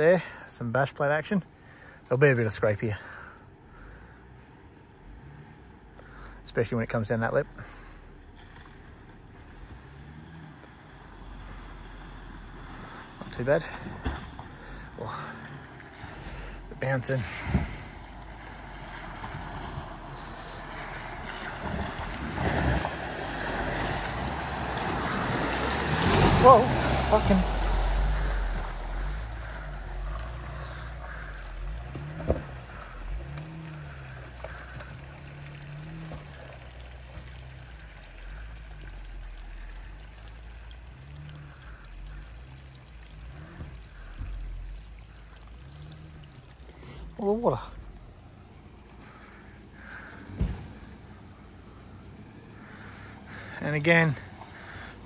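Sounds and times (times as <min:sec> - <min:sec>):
low engine rumble: 0:01.4 - 0:55.0
water sloshing and splashing: 0:07.7 - 0:49.5.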